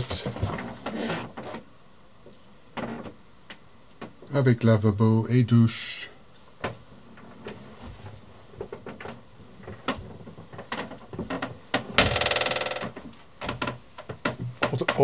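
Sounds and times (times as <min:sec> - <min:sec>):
wooden door creaking: 0:00.0 - 0:01.7, 0:02.8 - 0:03.2, 0:08.6 - 0:15.0.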